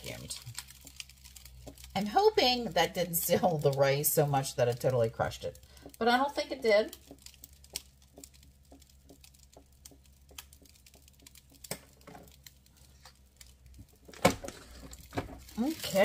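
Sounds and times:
light ticks and taps: 6.6 - 15.1.

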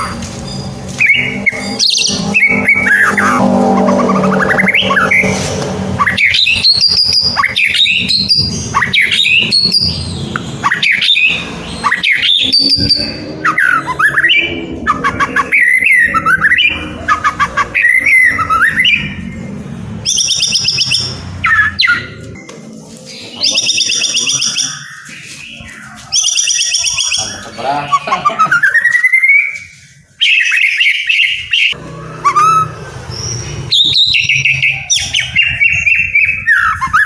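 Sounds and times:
bird singing whistled song: 6.0 - 19.2, 23.1 - 37.0.

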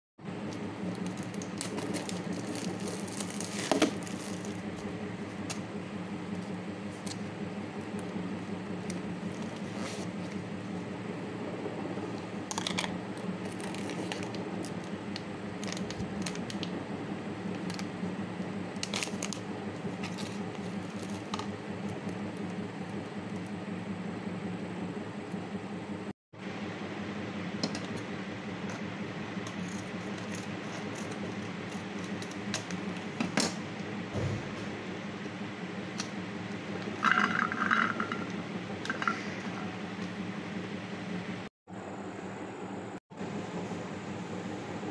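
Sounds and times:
low hum: 0.2 - 44.9
plastic packaging crinkling: 0.9 - 4.9.

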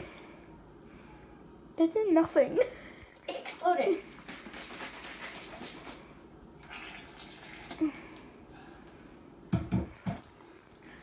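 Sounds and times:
soda fizzing and dripping: 6.6 - 7.9.

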